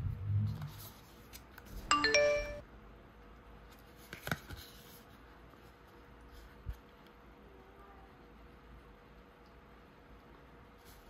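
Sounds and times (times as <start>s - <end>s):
two-note chime: 1.9s - 2.6s.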